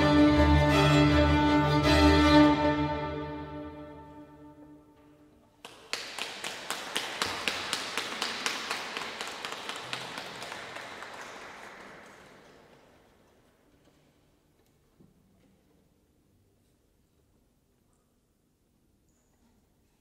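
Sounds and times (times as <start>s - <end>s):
string orchestra chord: 0.0s - 4.7s
audience applause: 5.6s - 13.0s.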